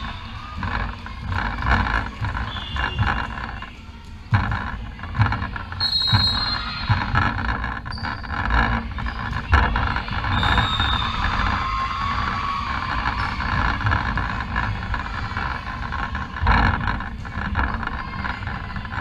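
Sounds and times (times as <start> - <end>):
shoes squeaking on floor: 0.0 - 4.6, 5.2 - 11.4.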